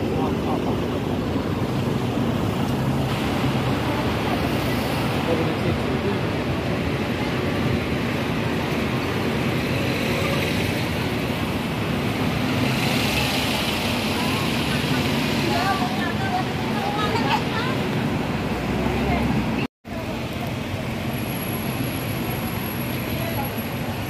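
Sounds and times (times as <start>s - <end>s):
passers-by talking: 0.0s - 9.0s, 12.8s - 21.0s
road traffic going by: 0.0s - 24.0s.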